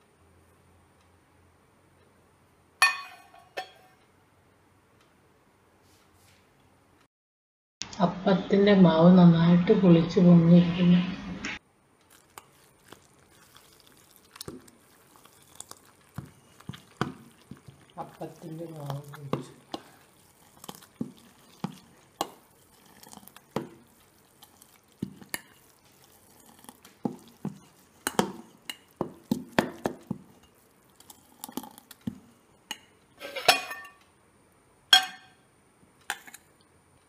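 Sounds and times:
metal clinking against pot: 2.8 - 4.0, 32.7 - 34.0, 34.9 - 35.4
spoon stirring batter in pot: 12.0 - 34.0, 36.0 - 36.6.

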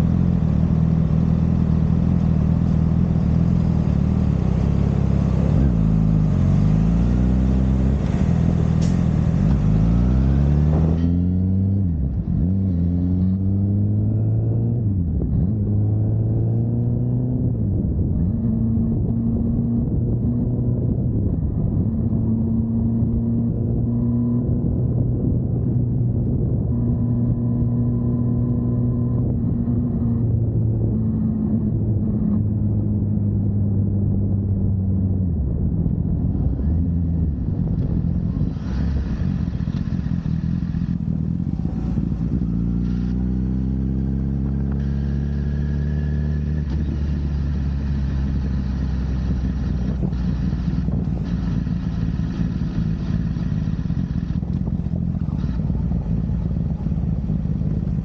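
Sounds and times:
motorcycle engine accelerating: 0.0 - 58.0
wind rush on microphone: 17.4 - 42.8, 46.6 - 55.4.

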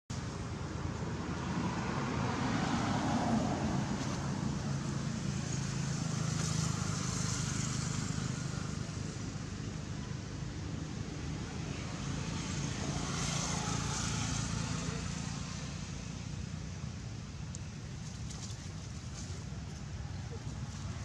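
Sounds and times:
vehicle engine humming: 0.1 - 21.0.

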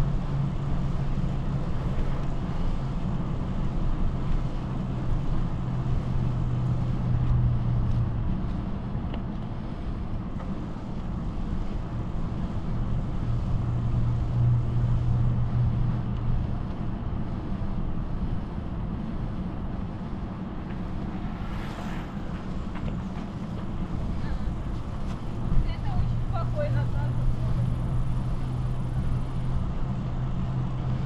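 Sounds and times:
bicycle riding on asphalt hum: 0.0 - 31.0.

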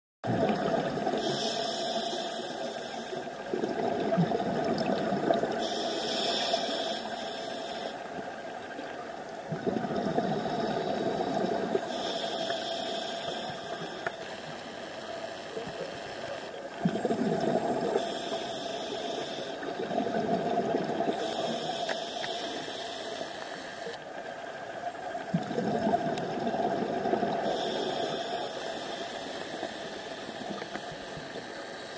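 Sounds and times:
exhaled bubbles rushing: 0.2 - 1.2, 3.5 - 5.6, 9.5 - 11.8, 16.8 - 18.0, 19.6 - 21.2, 25.3 - 27.5
regulator hissing inhalations: 1.2 - 3.5, 5.5 - 8.1, 10.2 - 14.4, 17.9 - 19.8, 21.0 - 24.0, 27.3 - 31.9.

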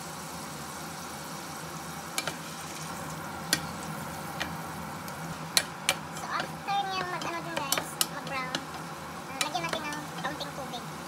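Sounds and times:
shrimp sizzling in a frying pan: 0.0 - 11.0
wooden spatula knocking on pan: 5.6 - 8.8.

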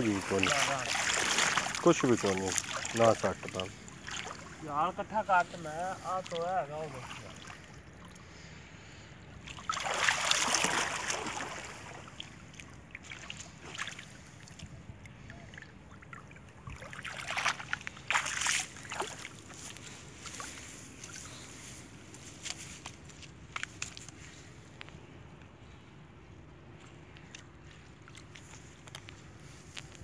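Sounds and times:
water dripping and trickling: 0.0 - 4.7
muddy water sloshing and splashing: 0.0 - 24.8, 26.6 - 30.0.

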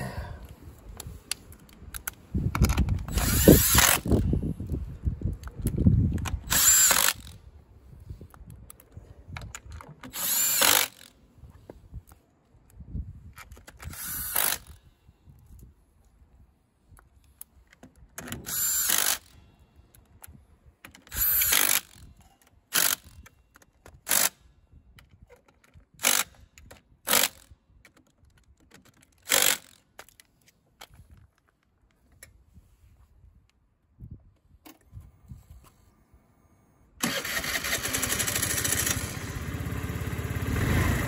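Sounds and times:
cordless power driver spinning bolts: 2.0 - 4.4, 5.5 - 7.4, 9.4 - 11.2, 13.7 - 14.8, 18.2 - 19.3, 20.9 - 23.3, 25.0 - 27.5, 29.2 - 30.1, 37.0 - 39.2.

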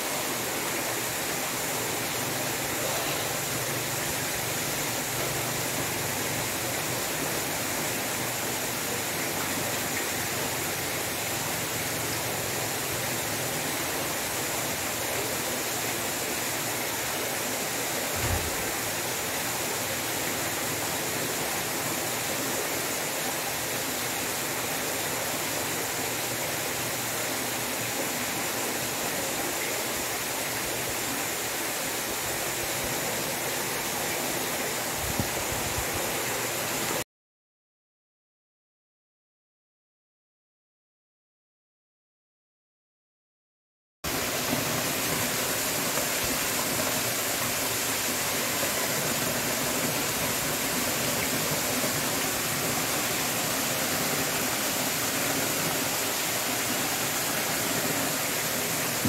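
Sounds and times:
low thump: 18.2 - 18.6
water pouring into a pool: 44.1 - 59.0.

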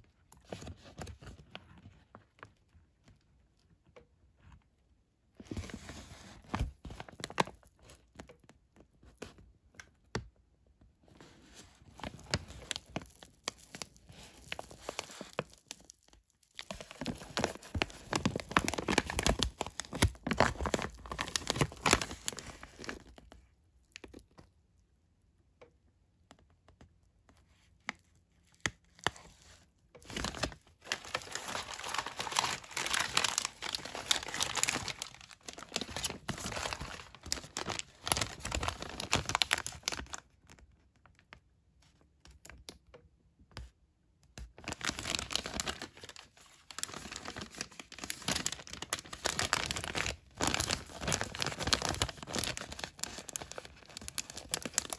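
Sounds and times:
plastic packaging crinkling: 11.7 - 24.4, 28.4 - 40.6, 44.5 - 54.9.

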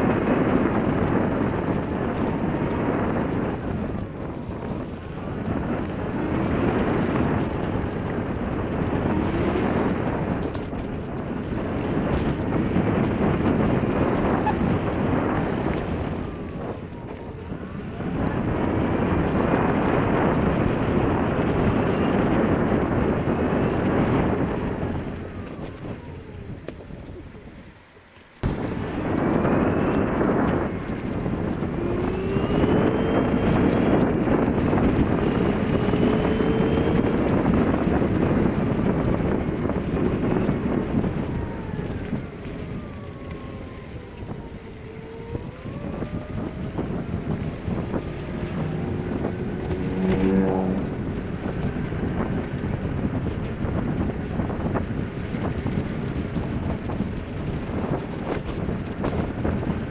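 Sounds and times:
vehicle engine driving: 0.0 - 59.9
wind buffeting microphone: 0.0 - 59.9
short pitched tone: 14.4 - 14.7.

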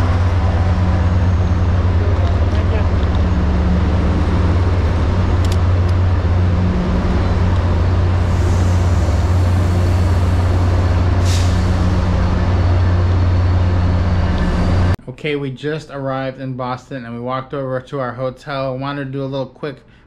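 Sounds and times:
idling trains droning: 0.0 - 15.0
released air hissing: 8.3 - 12.0.

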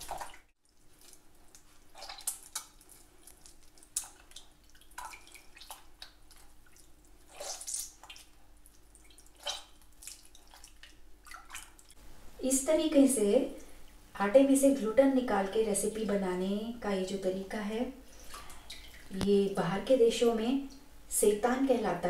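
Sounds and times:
hands kneading dough in water: 0.0 - 12.0
water splashes and drips: 0.0 - 12.0, 18.2 - 19.3.

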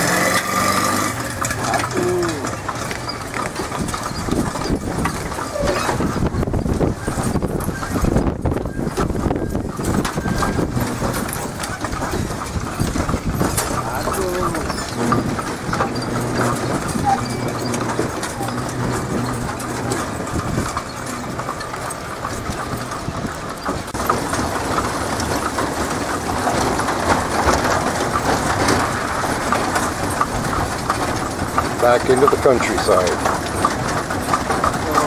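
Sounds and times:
cart wheels rattling: 0.0 - 35.0
hooves clip-clopping: 0.0 - 35.0.

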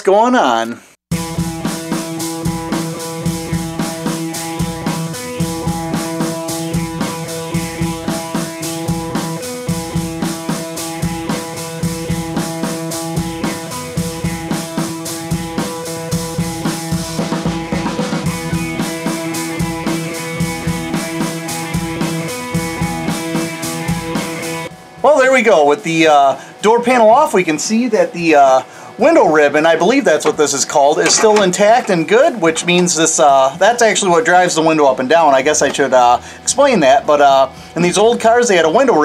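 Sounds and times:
background music with drum beat: 1.1 - 25.0, 30.2 - 32.3.

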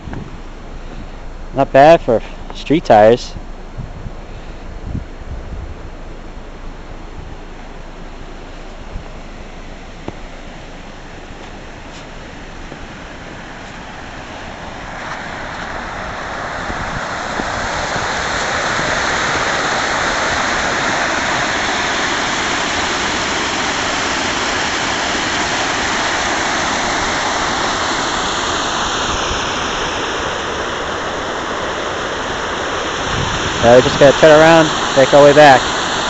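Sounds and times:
creek rushing over rocks: 10.1 - 36.0.

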